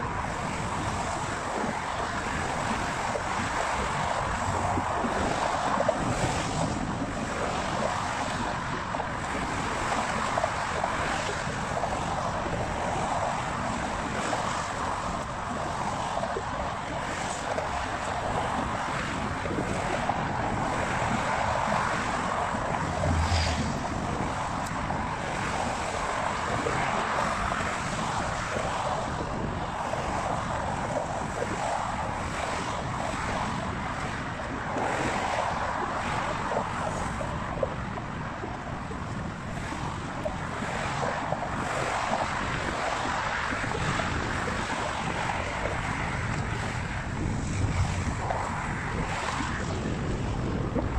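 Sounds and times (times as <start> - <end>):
wind on microphone: 0.0 - 50.9
car traffic passing: 20.6 - 28.2.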